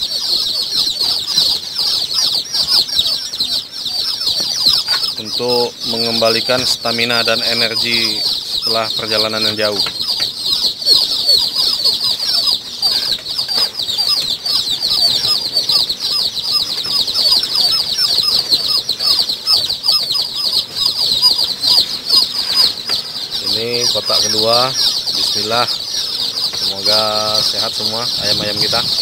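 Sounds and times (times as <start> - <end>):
chicks peeping: 0.0 - 29.0.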